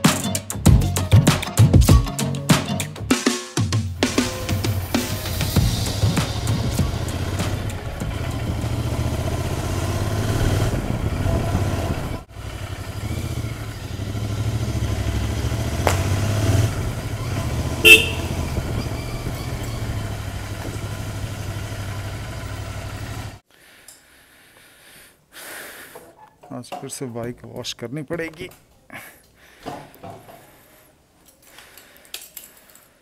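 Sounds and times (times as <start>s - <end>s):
motorcycle engine running: 4.2s - 23.4s
motorcycle horn beep: 17.7s - 19.9s.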